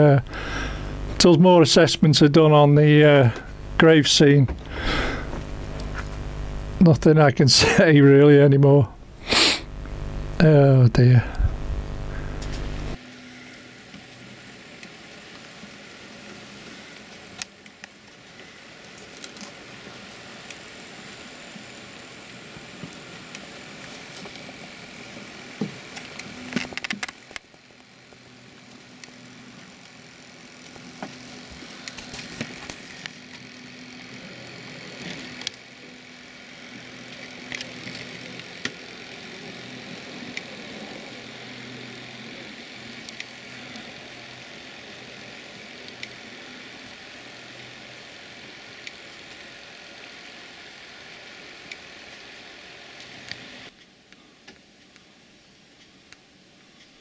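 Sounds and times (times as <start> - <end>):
model train motor hum: 0.0 - 55.0.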